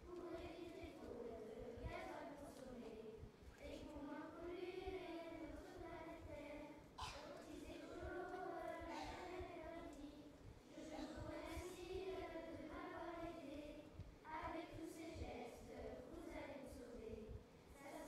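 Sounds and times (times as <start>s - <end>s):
child singing: 0.0s - 18.0s.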